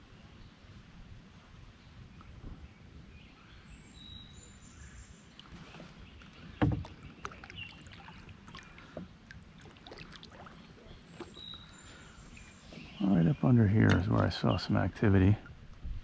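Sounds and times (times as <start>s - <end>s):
thump against canoe: 5.6s - 7.4s.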